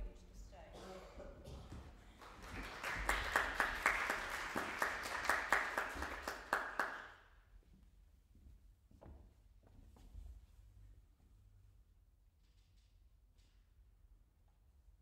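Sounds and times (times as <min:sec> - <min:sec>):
small audience clapping: 0:01.5 - 0:07.3.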